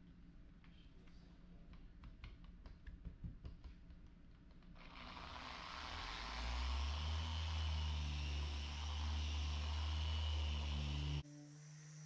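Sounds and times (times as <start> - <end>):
car polisher humming: 4.8 - 12.0.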